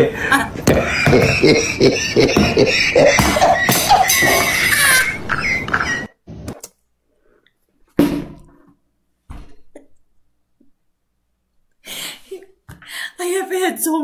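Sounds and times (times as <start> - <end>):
woman laughing: 0.0 - 5.7.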